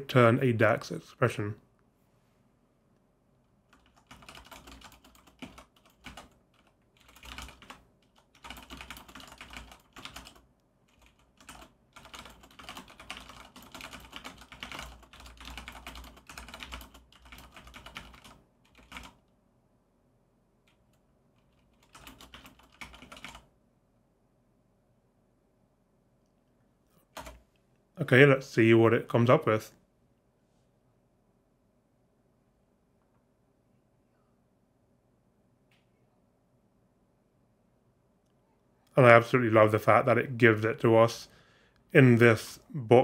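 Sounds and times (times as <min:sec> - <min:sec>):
typing on computer keyboard: 0:03.7 - 0:19.2, 0:20.7 - 0:23.5, 0:27.1 - 0:27.4.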